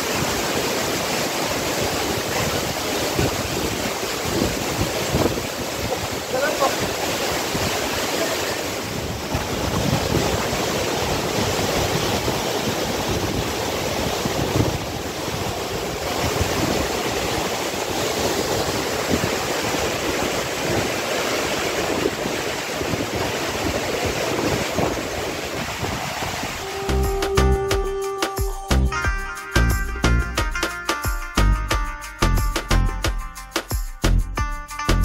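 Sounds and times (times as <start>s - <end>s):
stream running over rocks: 0.0s - 28.4s
waterfall rushing: 0.0s - 31.1s
wind buffeting microphone: 1.8s - 26.6s.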